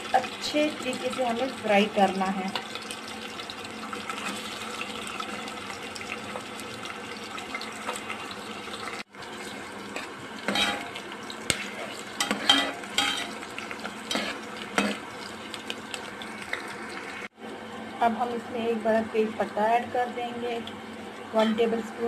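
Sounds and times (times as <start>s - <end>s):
onion sizzling in hot oil: 0.0s - 22.0s
metal ladle scraping a pot: 10.5s - 10.9s, 11.5s - 13.3s, 14.1s - 15.0s.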